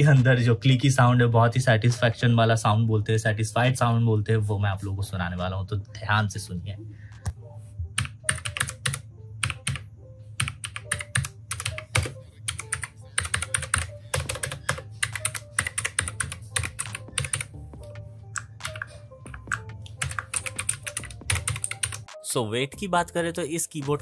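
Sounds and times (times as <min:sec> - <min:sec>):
mechanical keyboard typing clicks: 0:08.0 - 0:09.8, 0:10.4 - 0:17.5, 0:18.4 - 0:22.1.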